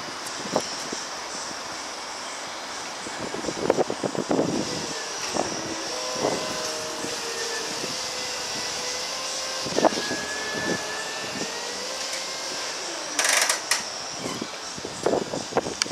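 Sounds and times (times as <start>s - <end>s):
electric forklift drive whine: 0.7s - 15.9s.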